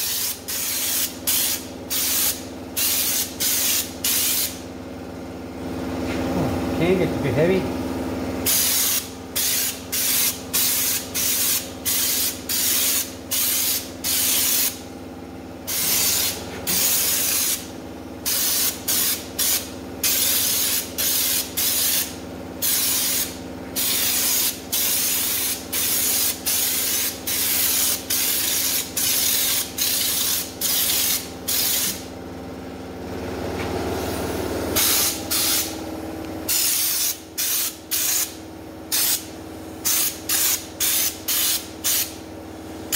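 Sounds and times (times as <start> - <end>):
coating spray hissing bursts: 0.0 - 4.6, 8.5 - 14.8, 15.7 - 32.0, 34.8 - 35.8, 36.5 - 42.2
steady low hum: 0.0 - 42.9.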